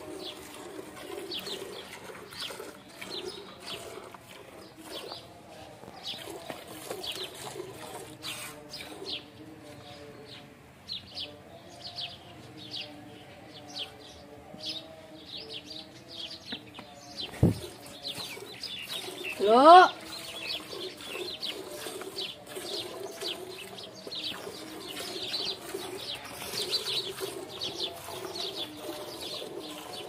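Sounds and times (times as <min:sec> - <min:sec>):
milk squirting into a pail: 0:00.0 - 0:09.3, 0:17.3 - 0:30.0
pigeons cooing: 0:17.4 - 0:30.0.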